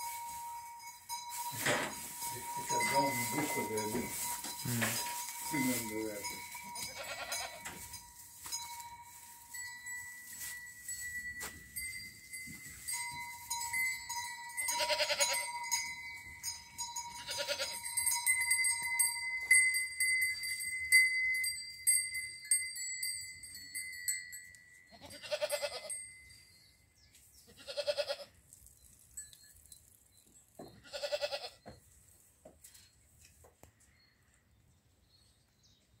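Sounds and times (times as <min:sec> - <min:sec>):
high ringing tones: 0:00.0 - 0:27.0
goats bleating: 0:06.8 - 0:07.8, 0:14.7 - 0:15.5, 0:17.2 - 0:17.8, 0:25.0 - 0:25.9, 0:27.5 - 0:28.3, 0:30.8 - 0:31.6.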